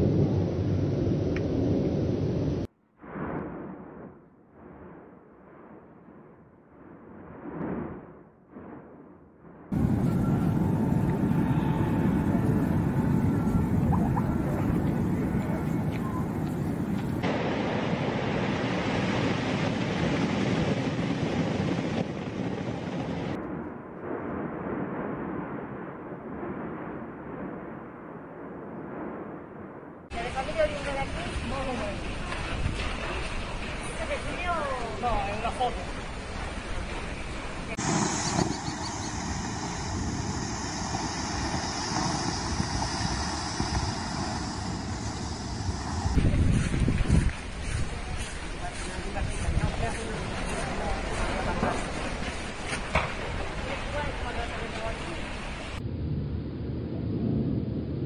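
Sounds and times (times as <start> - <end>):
wind: 0.0 - 58.0
aircraft engine rumble: 9.7 - 17.2, 35.8 - 58.0
ocean surf breaking on rocks: 9.7 - 21.3, 37.7 - 46.2.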